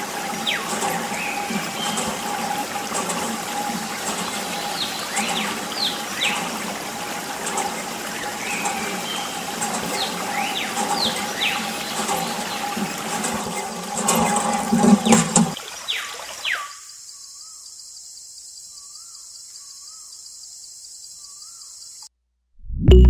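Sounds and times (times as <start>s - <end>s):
water trickling and splashing: 0.0s - 16.7s.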